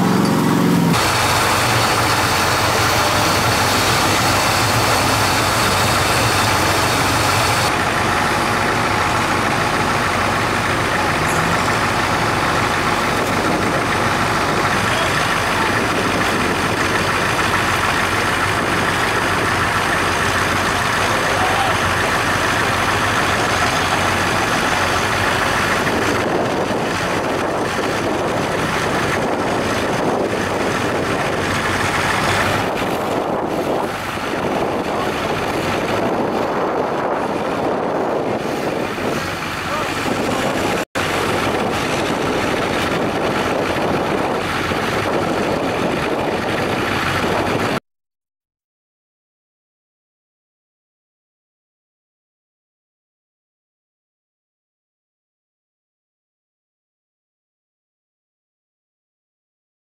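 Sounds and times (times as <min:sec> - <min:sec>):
truck engines running loudly: 0:00.0 - 0:47.8.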